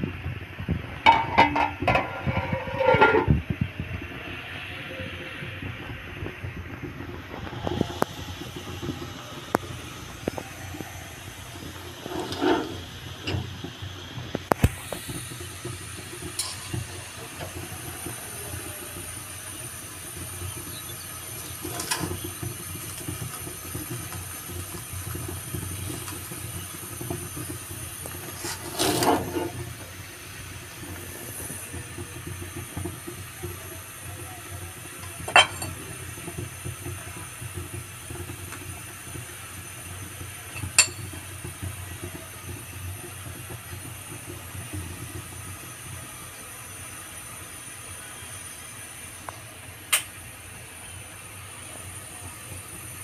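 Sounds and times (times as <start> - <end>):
low rumble and hiss: 0.0 - 53.0
metal spatula scraping a pan: 1.1 - 3.4, 12.0 - 12.8, 28.2 - 29.6.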